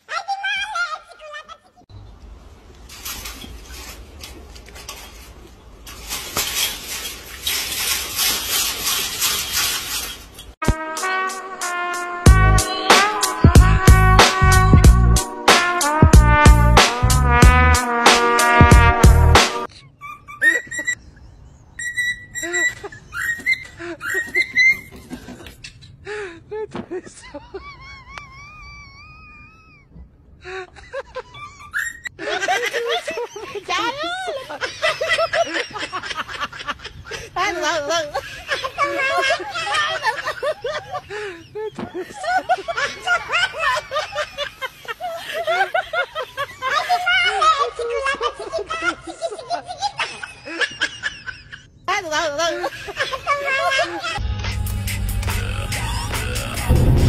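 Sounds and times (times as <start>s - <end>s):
chain-link fence rattling: 2.8s - 10.6s.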